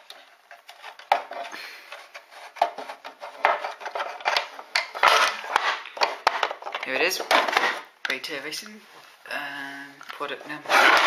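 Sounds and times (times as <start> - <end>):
plastic scraping and rubbing: 0.0 - 8.0, 10.1 - 11.0.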